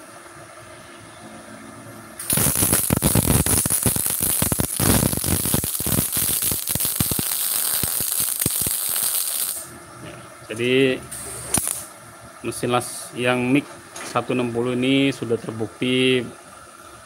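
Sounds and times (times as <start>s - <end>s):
welding arc crackling: 2.2s - 9.7s, 11.1s - 11.9s.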